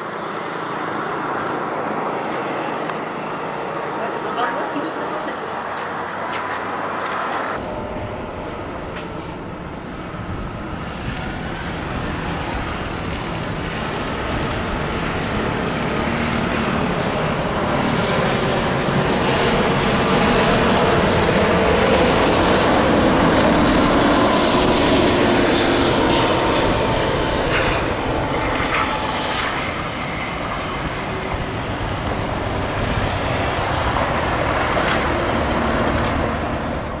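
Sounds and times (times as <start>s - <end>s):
jet engines rushing with whine: 0.0s - 37.0s.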